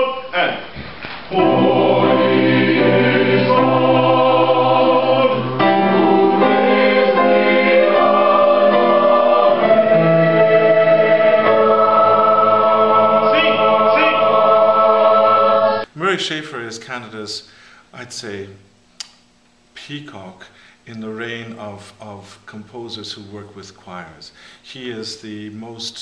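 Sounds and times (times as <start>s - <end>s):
chamber choir singing chords: 1.3s - 15.9s.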